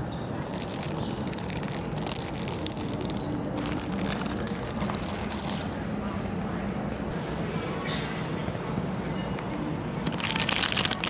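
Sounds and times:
steady low background noise: 0.0 - 11.0
plastic packaging crinkling: 0.4 - 5.7, 10.0 - 11.0.

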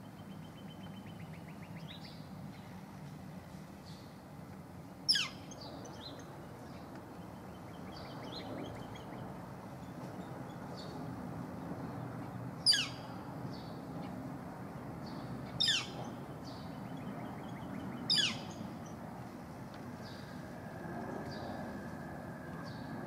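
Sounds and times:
woodpecker calls: 5.1 - 5.6, 12.7 - 13.0, 15.6 - 16.0, 18.1 - 18.6
faint high bird chirps: 15.6 - 18.7.

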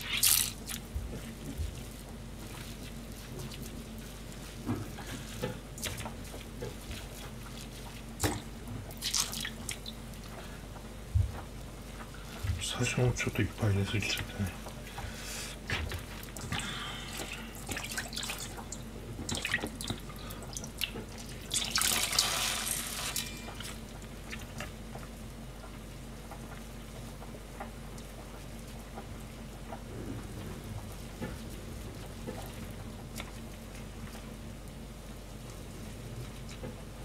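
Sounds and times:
water splashing in a bowl: 0.0 - 10.0, 15.8 - 24.7
low hum: 29.7 - 33.3.

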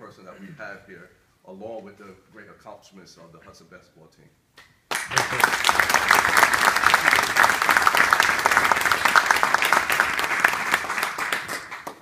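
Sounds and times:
crowd applauding: 4.9 - 12.0.

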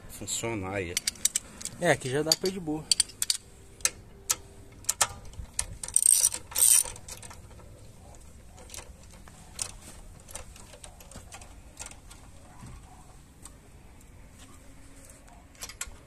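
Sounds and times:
socket ratchet clicking: 2.9 - 7.3
small metal clinks: 4.3 - 7.8.

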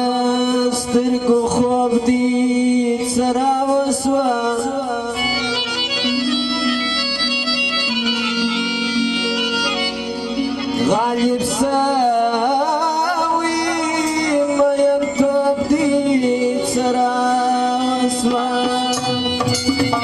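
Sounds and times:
man singing: 0.0 - 6.2, 10.7 - 20.0
reedy keyboard chords: 0.0 - 20.0
sharp percussion strokes: 18.2 - 20.0.

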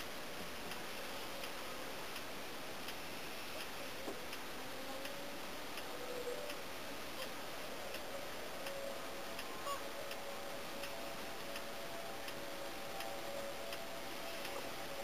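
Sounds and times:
steady hiss: 0.0 - 15.0
swan calls: 8.7 - 12.4.

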